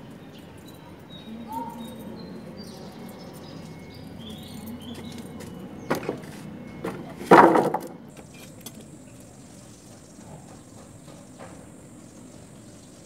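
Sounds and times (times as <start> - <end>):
wooden planks knocking and clattering: 5.9 - 8.0.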